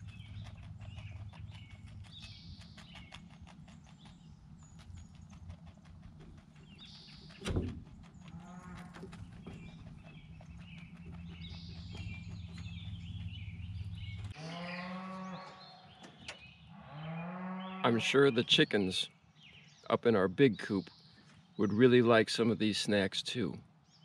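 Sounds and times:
small birds chirping: 0.0s - 24.0s
cow mooing: 8.3s - 9.1s, 14.4s - 15.9s, 16.7s - 18.2s.

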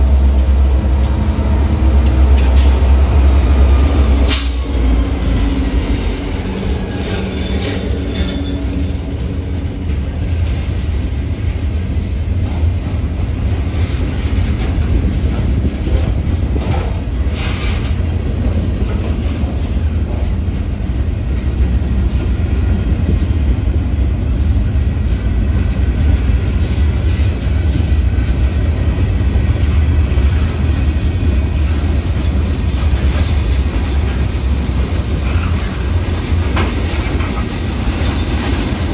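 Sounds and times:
freight cars rumbling past: 0.0s - 11.0s
diesel locomotive engine: 0.0s - 38.9s.

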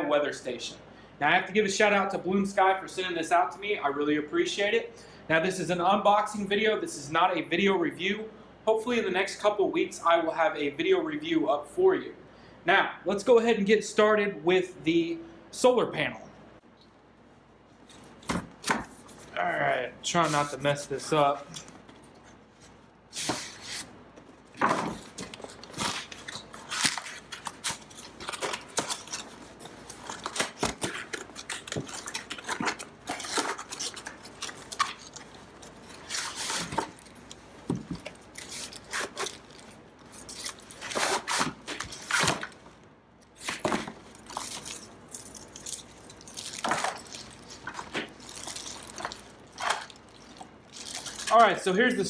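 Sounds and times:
plastic bag rustling: 20.2s - 42.8s, 43.4s - 51.6s.

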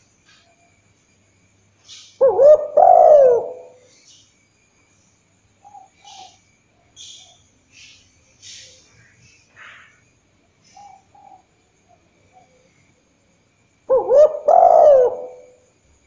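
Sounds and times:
dove cooing: 1.9s - 4.0s, 5.6s - 6.4s, 10.7s - 12.7s, 13.9s - 15.7s.

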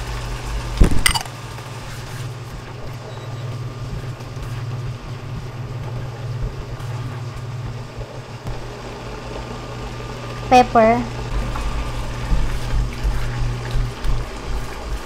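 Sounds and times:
sauce simmering and sizzling: 1.4s - 15.0s.

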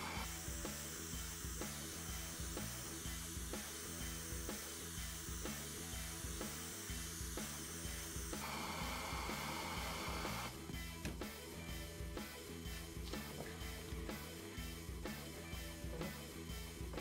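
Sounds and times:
blowtorch flame hissing: 0.0s - 10.6s
background music with steady beat: 0.0s - 17.0s.

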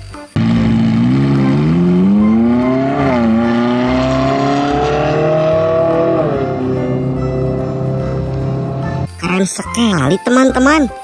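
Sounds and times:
sports car engine accelerating: 0.4s - 9.1s.

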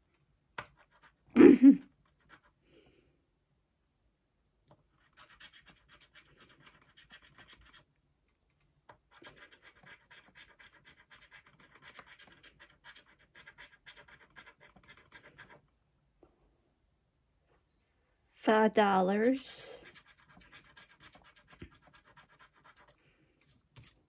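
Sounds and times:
scratching lottery ticket: 4.9s - 7.9s, 9.0s - 15.6s, 19.8s - 23.0s.

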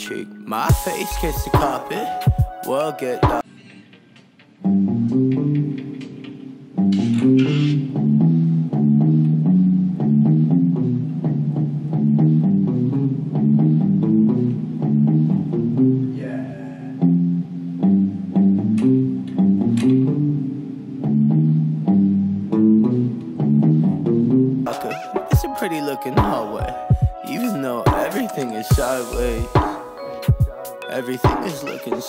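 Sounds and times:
rock guitar and bass: 4.6s - 24.7s.

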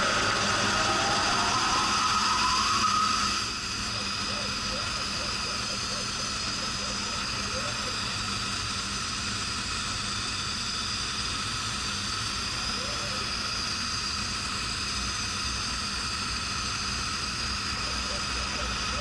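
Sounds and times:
laser cutter fans whirring: 0.0s - 19.0s.

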